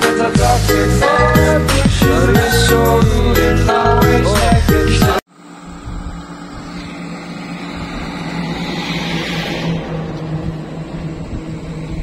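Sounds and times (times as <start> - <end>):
engine humming: 5.4 - 12.0
vehicle passing: 6.6 - 12.0.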